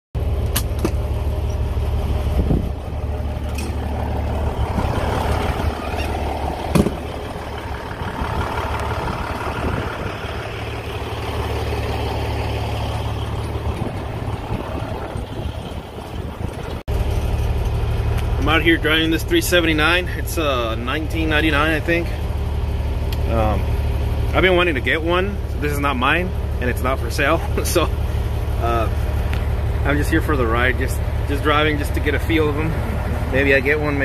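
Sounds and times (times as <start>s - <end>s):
truck diesel engine idling: 0.2s - 34.0s
loud knock: 6.7s - 7.1s.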